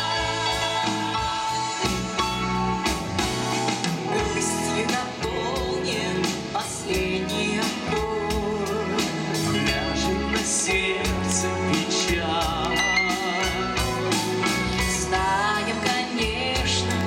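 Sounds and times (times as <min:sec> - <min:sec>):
women singing: 0:00.0 - 0:01.8, 0:03.9 - 0:10.0, 0:14.9 - 0:17.0
live pop-rock band: 0:00.0 - 0:17.0.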